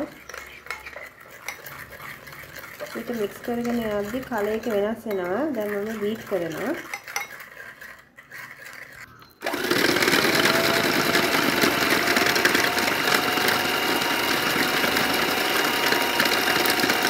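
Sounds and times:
electric hand mixer whining: 5.5s - 6.8s, 7.5s - 17.0s.

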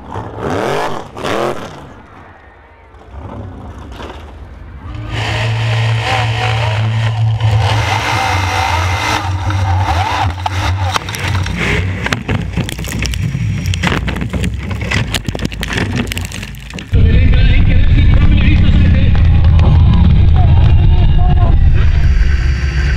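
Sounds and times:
chassis clattering: 2.9s - 22.9s
race car engine running hard: 4.8s - 12.1s, 17.0s - 22.9s.

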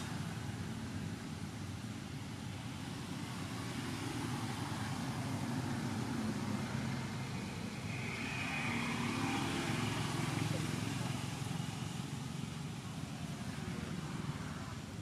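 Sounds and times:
vehicle engine rumbling: 0.0s - 15.0s
faint high-pitched tone: 7.8s - 11.6s.

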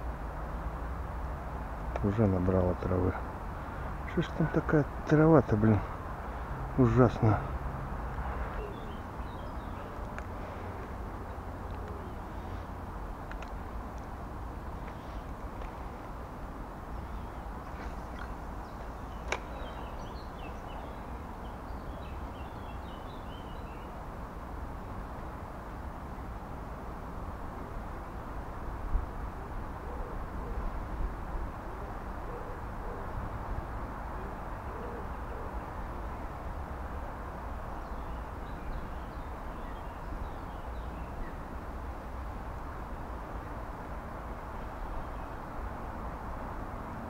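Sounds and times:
low rumble and hiss: 0.0s - 47.0s
small birds twittering: 1.9s - 24.1s, 37.4s - 43.6s
faint bird chirps: 8.2s - 10.1s.

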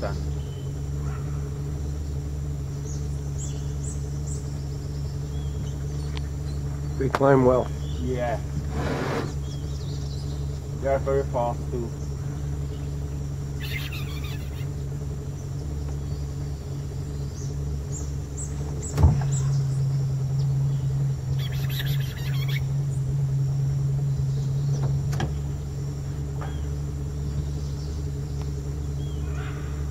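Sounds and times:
faint bird chirps: 0.0s - 7.0s, 7.6s - 8.4s, 11.9s - 23.1s, 26.2s - 29.9s
motor idling hum: 0.0s - 29.9s
short rasping buzzes: 13.5s - 15.4s.

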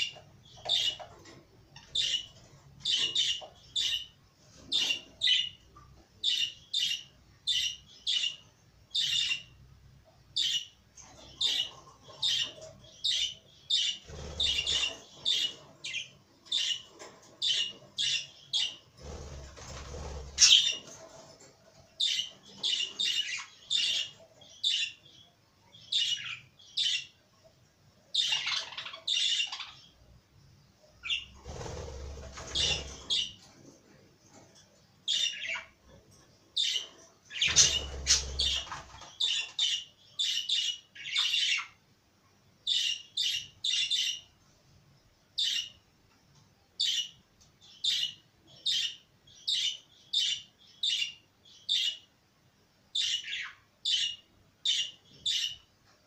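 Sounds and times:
budgerigars chirping: 0.0s - 5.6s, 6.2s - 9.6s, 10.4s - 21.0s, 22.0s - 25.2s, 25.8s - 27.1s, 28.2s - 29.9s, 31.0s - 33.4s, 35.1s - 35.8s, 36.6s - 41.8s, 42.7s - 44.3s, 45.4s - 45.8s, 46.8s - 52.0s, 53.0s - 55.6s.

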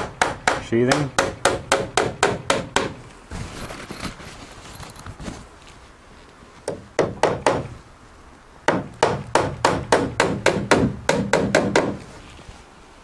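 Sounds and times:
hammer driving nails into wood: 0.0s - 3.0s, 6.7s - 7.7s, 8.7s - 12.0s.

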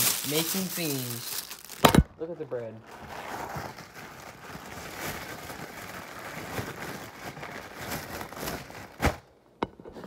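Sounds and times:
rustling handling noise: 0.0s - 9.3s.

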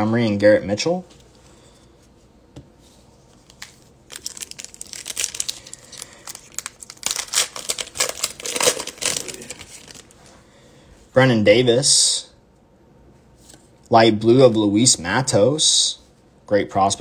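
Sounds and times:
foil wrapper tearing and crinkling: 4.1s - 10.1s.

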